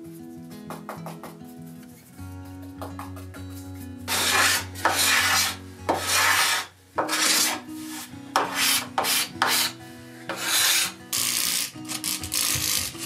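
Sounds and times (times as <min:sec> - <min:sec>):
sandpaper rubbing on wood: 0:04.1 - 0:13.0.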